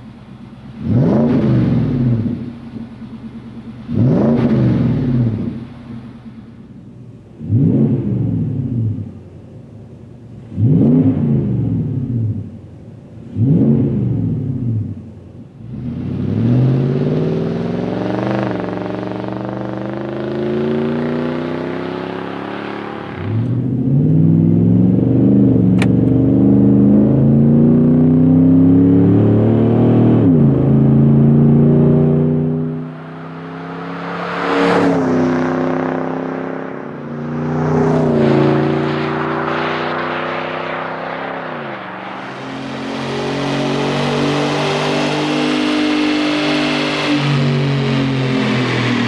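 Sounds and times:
engine revving: 0.8 - 2.5, 3.8 - 5.7, 7.4 - 9.1, 10.5 - 12.5, 13.3 - 15.0, 15.6 - 49.0
truck engine accelerating: 10.4 - 49.0.

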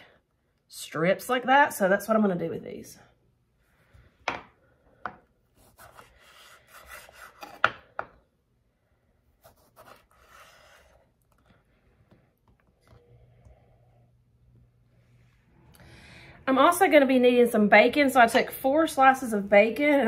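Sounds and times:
knife slicing through pickle: 5.6 - 7.7, 9.4 - 11.0.

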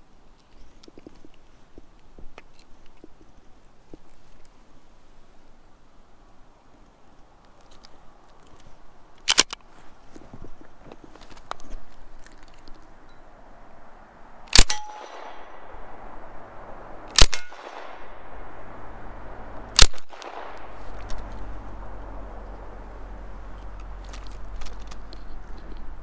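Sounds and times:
submachine gun shots: 14.5 - 15.8, 17.1 - 18.6, 19.7 - 21.4
gunshot echo: 14.5 - 16.2, 17.1 - 22.1.

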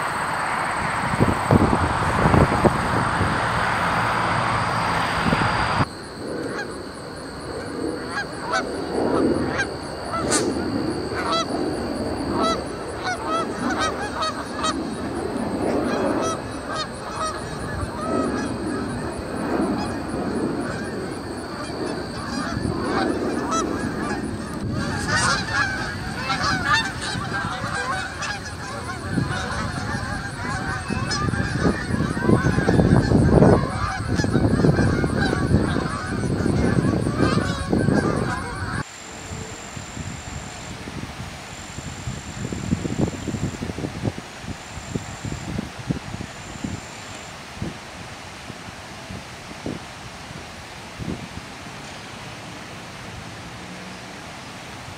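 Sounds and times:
geese honking: 0.0 - 38.8
steady rushing noise: 0.0 - 54.9.

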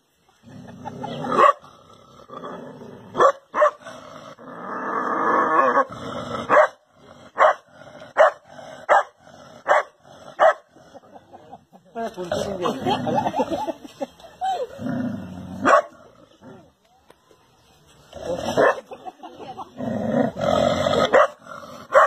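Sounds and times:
dog barking: 3.2 - 3.8, 6.5 - 6.8, 7.4 - 7.6, 8.2 - 10.6, 15.6 - 16.0, 21.1 - 22.0.

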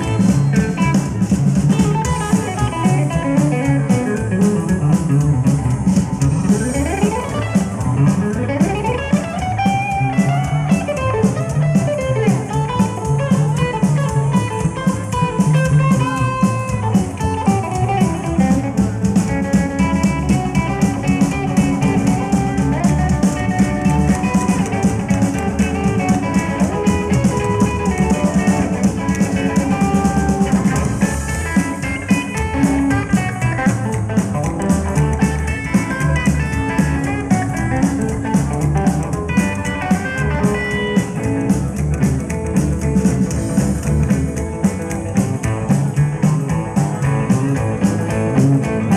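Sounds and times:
drum kit beat: 0.0 - 48.9
electric guitar lead: 0.0 - 48.9.

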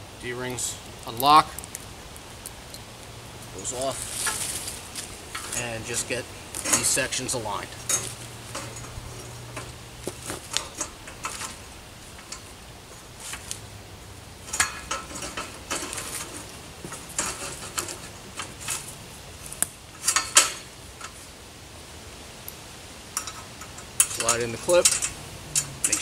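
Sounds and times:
metal ladder sections clanking: 3.6 - 13.5, 14.4 - 19.0, 20.0 - 21.2, 23.2 - 26.0.

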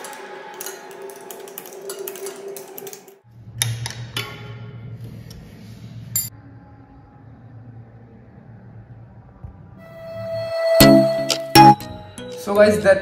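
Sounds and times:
electronic music with ticking beat: 10.6 - 12.4.

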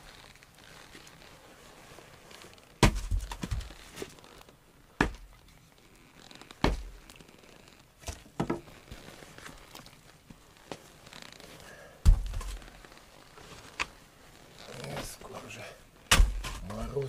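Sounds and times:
firewood thudding and knocking: 2.8 - 4.1, 5.0 - 5.4, 6.6 - 7.0, 8.0 - 8.7, 12.0 - 12.8, 16.1 - 16.9.

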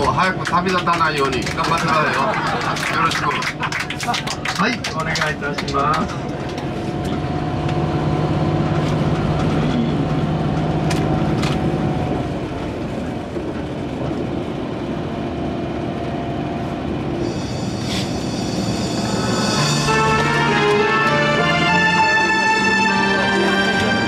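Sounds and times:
bus engine drone: 0.0 - 24.0
road noise: 0.0 - 24.0
music: 17.3 - 24.0.

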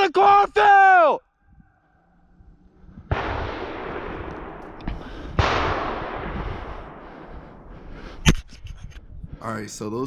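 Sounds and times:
gunshots with echo: 3.0 - 8.4.

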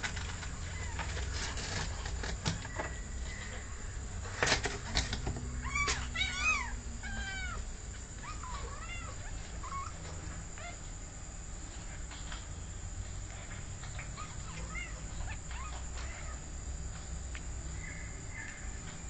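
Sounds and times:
cat meowing: 5.6 - 7.6, 8.2 - 9.9, 14.0 - 16.4.

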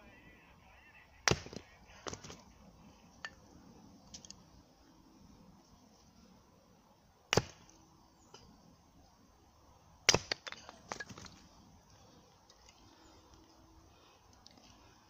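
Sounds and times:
hatchet chopping wood: 1.3 - 2.4, 7.3 - 7.7, 10.1 - 11.2.

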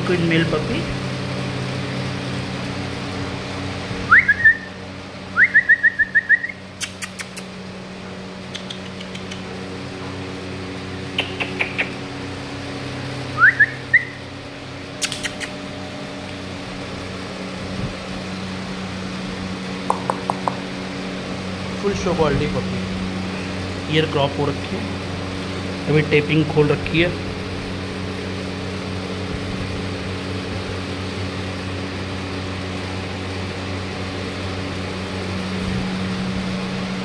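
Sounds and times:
low mechanical hum: 0.0 - 37.0
rising whistles: 4.0 - 6.7, 13.3 - 14.4
sharp clicks: 8.5 - 9.5, 15.0 - 15.6, 19.9 - 20.6.

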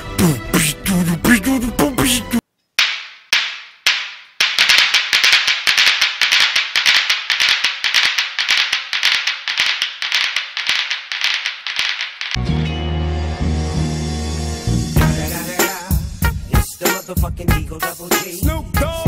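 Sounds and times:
steel balls clacking: 2.8 - 12.4.

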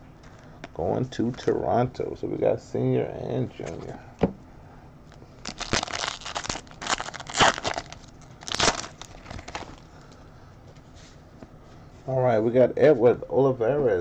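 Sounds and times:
foil wrapper crinkling and tearing: 5.4 - 9.9.

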